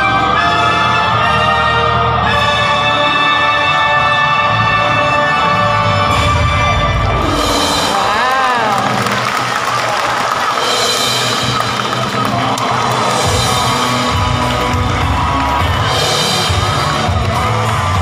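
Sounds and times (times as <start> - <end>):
heavy bass: 0.0 - 9.4, 10.6 - 18.0
upbeat show music: 0.0 - 18.0
drum-kit beat: 10.6 - 18.0.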